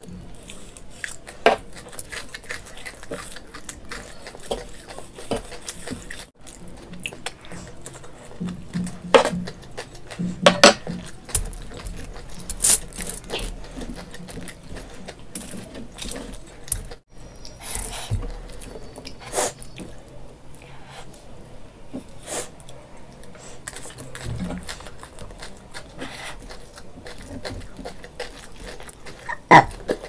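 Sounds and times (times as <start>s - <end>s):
eating sounds: 0.0s - 30.0s
cutlery clinking on a plate: 10.4s - 11.5s.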